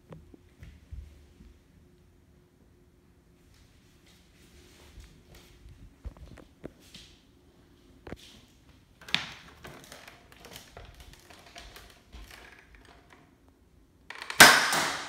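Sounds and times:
toy blaster clicks and rattles: 14.1 - 15.0
toy blaster firing crack: 14.1 - 15.0.

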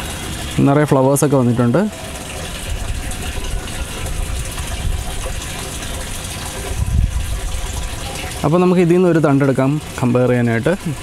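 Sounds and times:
water rushing through pipes: 0.0 - 11.0
low rumble: 1.8 - 5.6.

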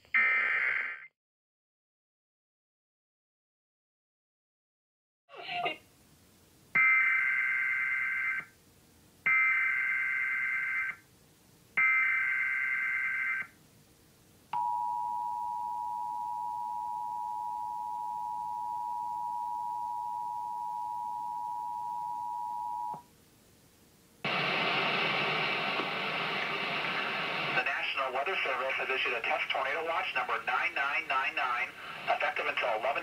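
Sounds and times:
steady attention tone: 14.6 - 23.0.

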